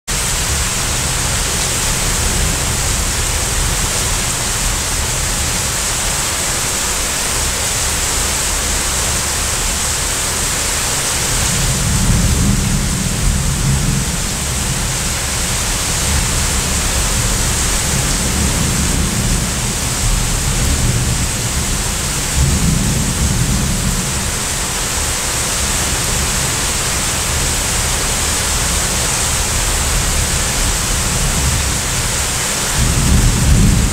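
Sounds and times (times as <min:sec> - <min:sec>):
heavy rain pouring: 0:00.1 - 0:33.9
thunder rumbling: 0:11.3 - 0:33.9.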